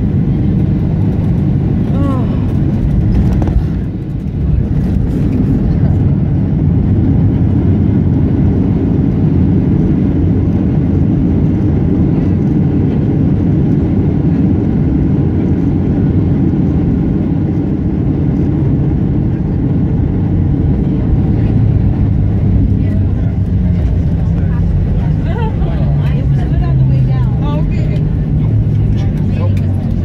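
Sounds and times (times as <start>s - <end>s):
jet cabin low rumble: 0.0s - 30.0s.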